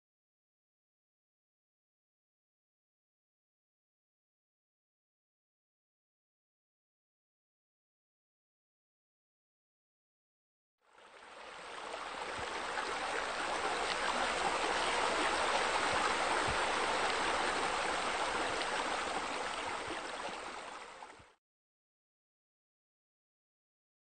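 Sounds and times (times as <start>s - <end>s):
fountain water splashing: 11.0s - 21.2s.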